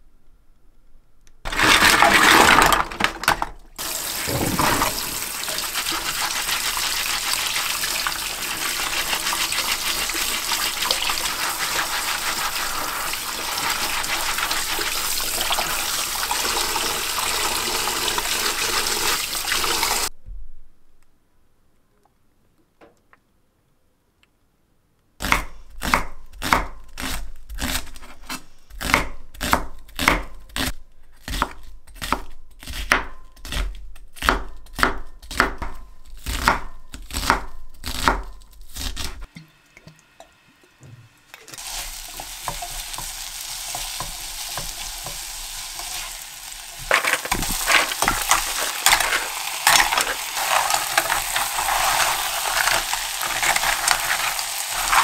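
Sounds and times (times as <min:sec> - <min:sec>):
pot sizzling: 0:01.5 - 0:20.1, 0:39.2 - 0:55.0
shells clattering while stirred: 0:46.8 - 0:55.0.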